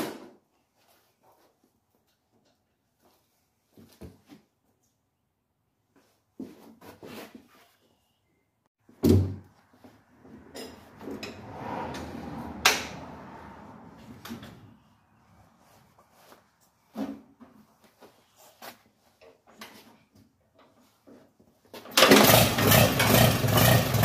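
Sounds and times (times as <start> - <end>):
rustling and scraping: 5.9 - 8.2, 13.9 - 21.8.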